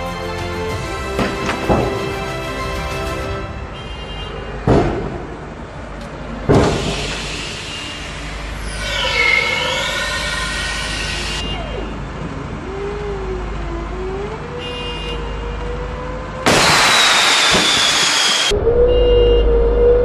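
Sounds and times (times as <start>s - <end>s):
engine and hydraulic whine: 0.0s - 20.0s
loud hiss: 6.6s - 11.4s, 16.5s - 18.5s.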